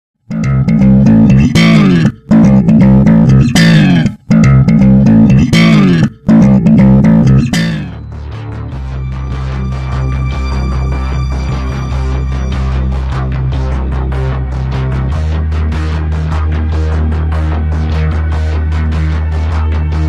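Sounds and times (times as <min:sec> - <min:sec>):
intro music with repeating riff: 0:00.3 - 0:20.0
low held tone: 0:05.7 - 0:14.6.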